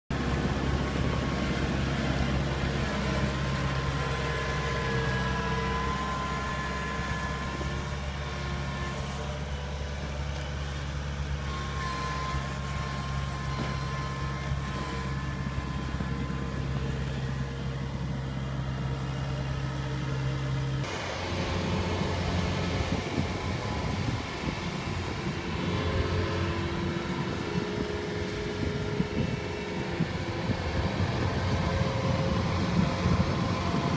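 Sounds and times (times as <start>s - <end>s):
combine harvester running unevenly: 0.1s - 33.9s
diesel engine running: 0.1s - 33.9s
wavering whine: 0.2s - 18.4s, 20.8s - 33.9s.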